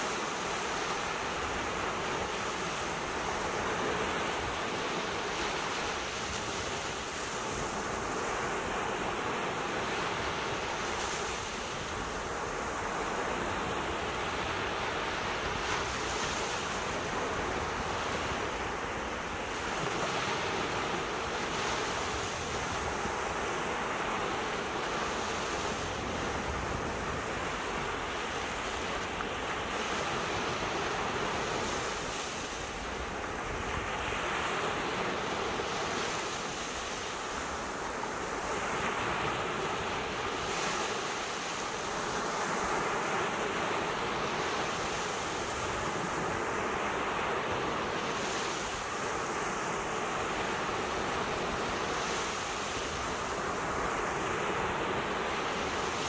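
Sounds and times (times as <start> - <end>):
waves breaking on beach: 0.0 - 56.0.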